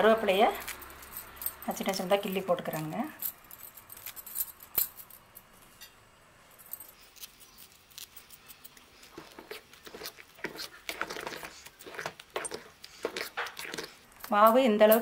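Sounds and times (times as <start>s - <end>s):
spoon stirring thick batter: 8.8s - 14.4s.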